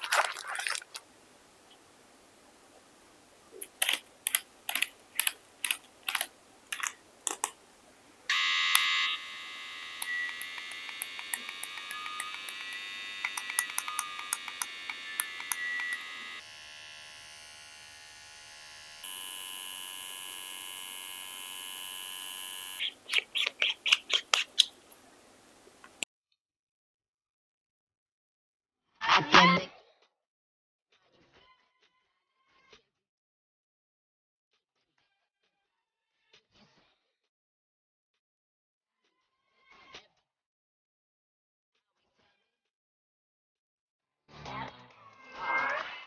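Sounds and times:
sharp clicks: 0:03.6 - 0:07.6, 0:10.0 - 0:16.2
tattoo pen motor whirring: 0:08.3 - 0:23.0.

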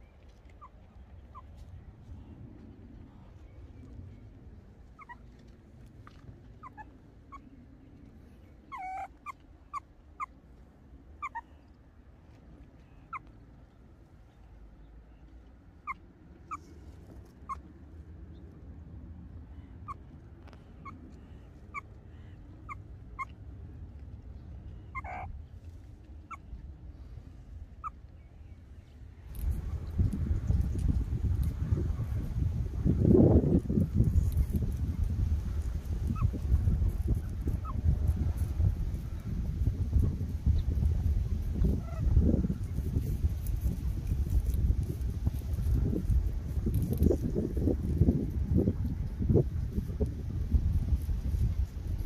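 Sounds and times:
meerkat chirping calls: 0:05.0 - 0:05.2, 0:06.6 - 0:07.5, 0:08.7 - 0:10.3, 0:11.2 - 0:11.6, 0:15.8 - 0:16.6, 0:20.8 - 0:23.4, 0:24.8 - 0:25.3, 0:36.0 - 0:36.4, 0:37.0 - 0:37.8
meerkat wavering calls: 0:05.0 - 0:05.2, 0:08.7 - 0:10.3, 0:11.2 - 0:11.5, 0:24.9 - 0:25.3.

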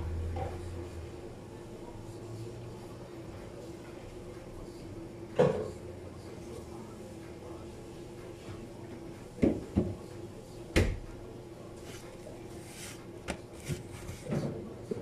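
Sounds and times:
objects knocking on kitchen counter: 0:09.4 - 0:10.0.

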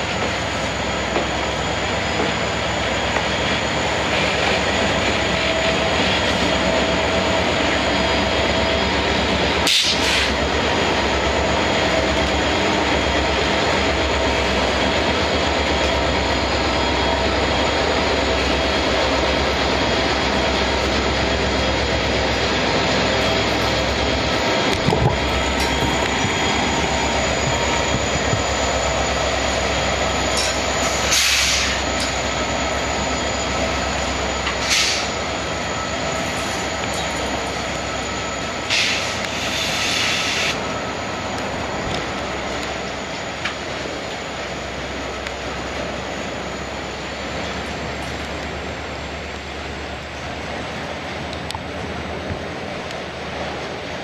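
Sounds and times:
freight train rolling past: 0:00.0 - 0:54.0
train wheel squeal: 0:00.0 - 0:54.0.

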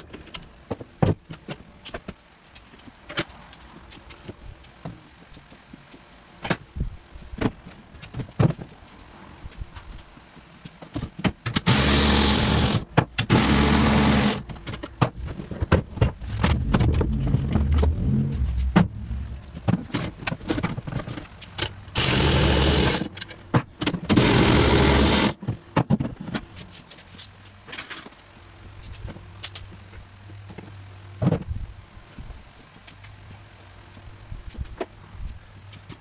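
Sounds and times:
cordless power tool bursts: 0:11.6 - 0:14.4, 0:22.0 - 0:23.1, 0:24.1 - 0:25.4
clatter of bolts and parts: 0:25.1 - 0:28.2.

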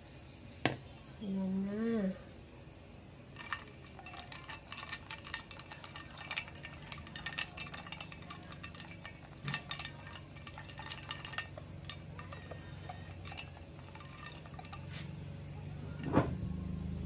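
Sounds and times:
ice clinking against glass: 0:03.4 - 0:16.1.

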